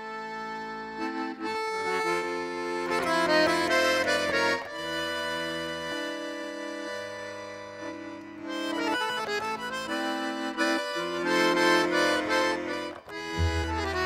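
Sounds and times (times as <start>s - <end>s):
accordion playing: 0.0s - 14.0s.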